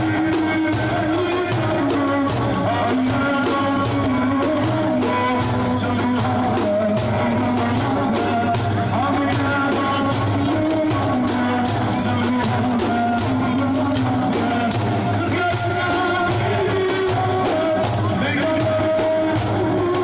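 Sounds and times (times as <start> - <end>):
frame drums beating: 0.0 - 20.0
man singing through microphone: 0.0 - 20.0.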